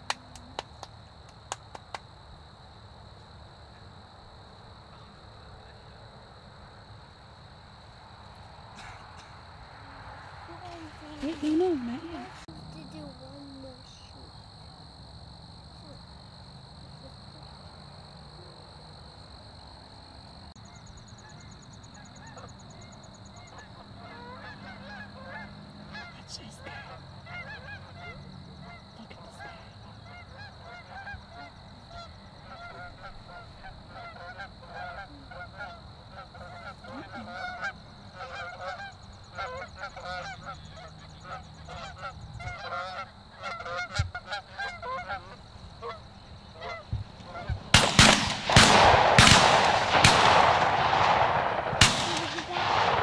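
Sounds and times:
high insect drone: 0.0 - 53.0
geese honking in flight: 20.6 - 50.4.

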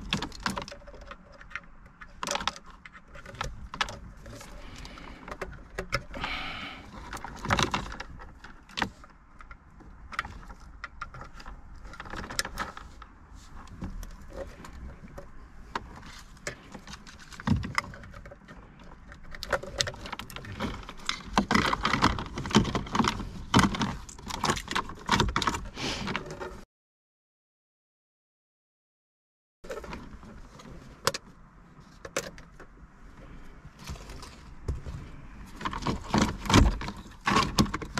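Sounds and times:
plastic plugs clicking and rattling: 0.0 - 6.3, 14.0 - 26.6, 35.6 - 37.9.

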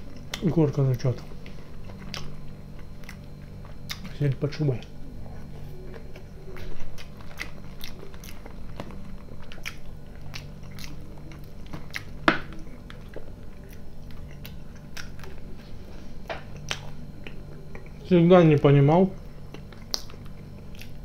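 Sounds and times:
person chewing food: 0.0 - 18.0, 19.1 - 21.0
wet mouth clicks: 3.9 - 4.1, 19.5 - 21.0.

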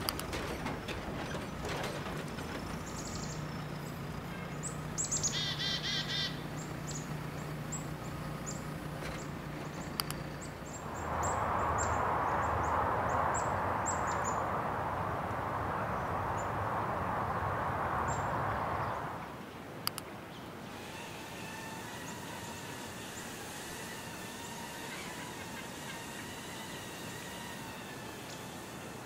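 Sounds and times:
birds chirping: 0.0 - 28.9
bird trill: 2.9 - 12.7
steady rushing noise: 6.4 - 20.6.

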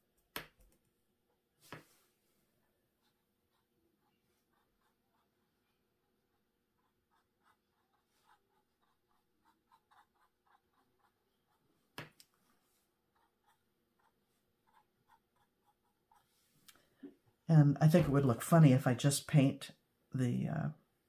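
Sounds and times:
paintbrush dabbing on canvas: 2.8 - 16.6.

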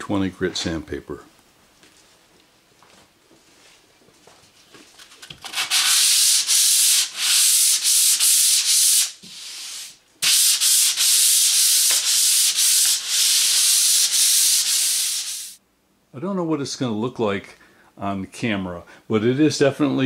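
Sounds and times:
sandpaper hissing on painted wood: 5.5 - 15.6.

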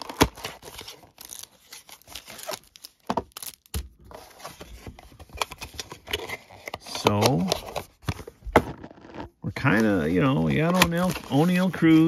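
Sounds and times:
cardboard box tearing: 0.0 - 4.4.

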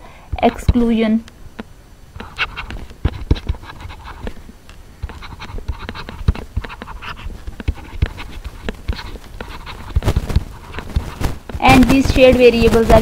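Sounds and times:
stylus scratching while writing: 2.2 - 4.4, 5.0 - 13.0.

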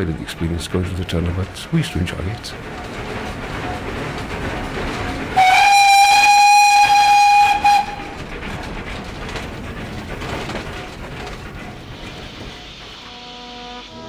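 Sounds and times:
moving train running noise: 0.0 - 14.0
steam locomotive whistle: 5.4 - 8.2, 13.0 - 14.0.

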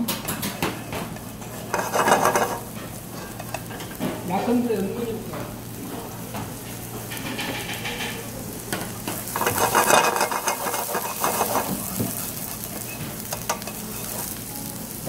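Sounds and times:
onion sizzling in oil: 0.3 - 15.0
chopsticks scraping a pan: 0.9 - 4.6, 7.0 - 15.0.

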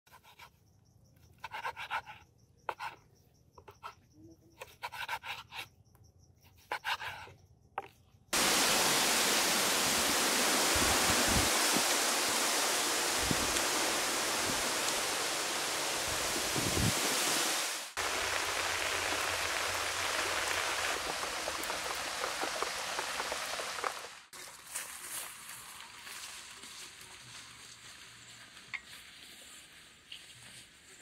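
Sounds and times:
loud steady rushing hiss: 8.4 - 24.3.

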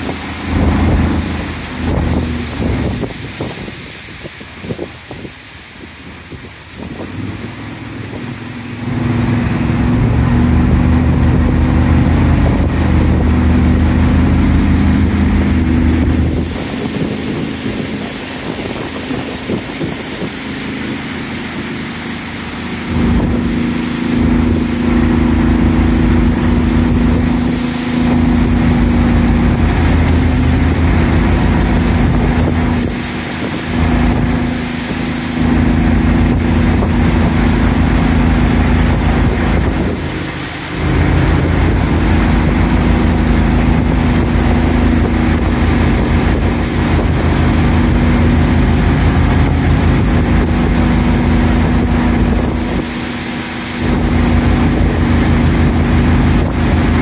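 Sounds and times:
outboard motor running: 0.0 - 57.0
water spray hissing along hull: 0.0 - 57.0.

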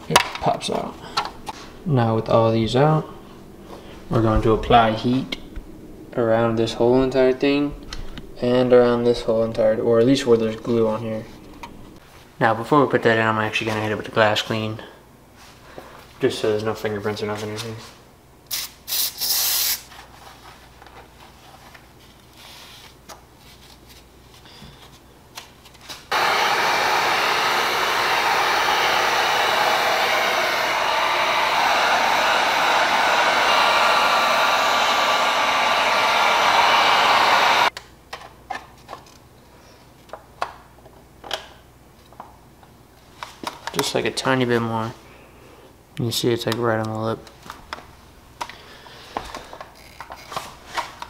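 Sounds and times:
heat gun blowing: 26.1 - 37.7.

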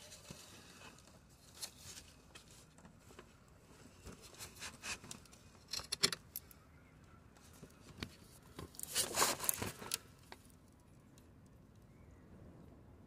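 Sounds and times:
rustling and scraping handling noise: 0.0 - 6.5, 7.3 - 10.6.

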